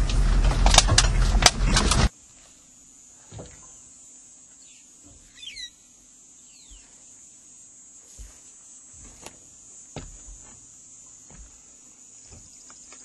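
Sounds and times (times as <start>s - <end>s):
steady high hiss: 2.1s - 13.0s
whistled bird calls: 4.6s - 5.8s.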